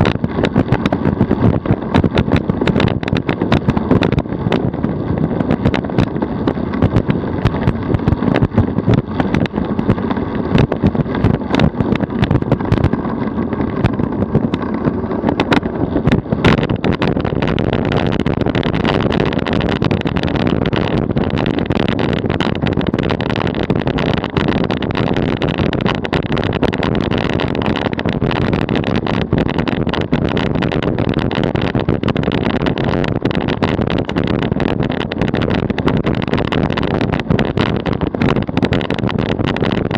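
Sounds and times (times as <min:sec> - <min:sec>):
sharp clicks and knocks: 0:00.0 - 0:39.9
tyre and road rumble: 0:00.0 - 0:39.9.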